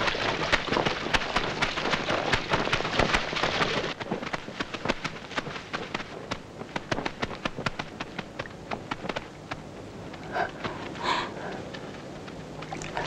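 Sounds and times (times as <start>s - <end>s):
stream water rushing: 12.6s - 13.0s.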